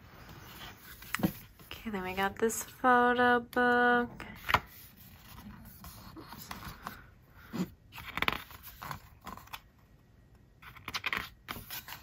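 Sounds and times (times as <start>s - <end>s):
paper pages rustling: 0.2s - 1.7s, 7.9s - 9.7s, 10.6s - 12.0s.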